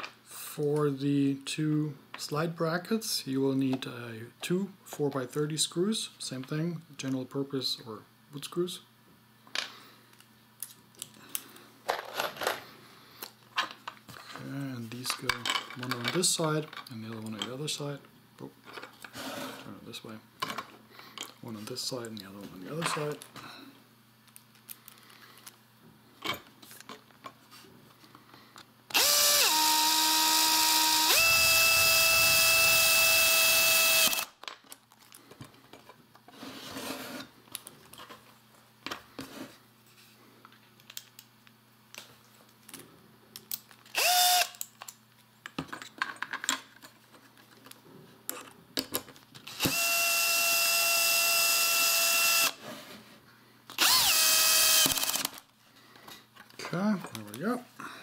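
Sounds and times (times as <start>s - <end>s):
power drill driving screws: 28.9s - 34.3s, 43.9s - 44.6s, 49.5s - 52.6s, 53.8s - 55.4s.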